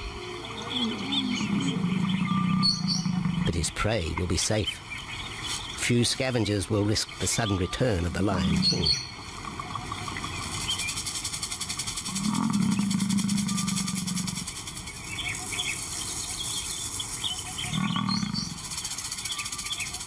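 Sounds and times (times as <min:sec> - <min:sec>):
lion roaring: 0:00.8 - 0:03.6, 0:12.1 - 0:14.5, 0:17.6 - 0:18.6.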